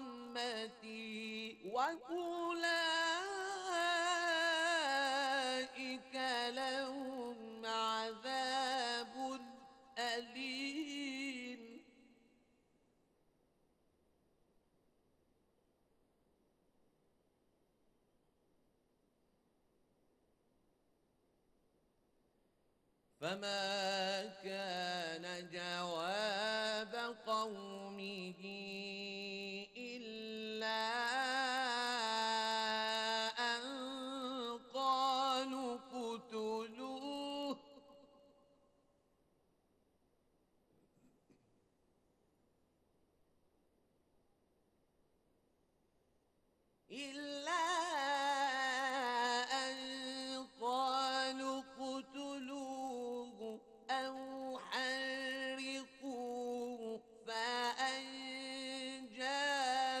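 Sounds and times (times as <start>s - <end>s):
person reciting melodically: 0.0s - 11.8s, 23.2s - 37.9s, 46.9s - 60.0s.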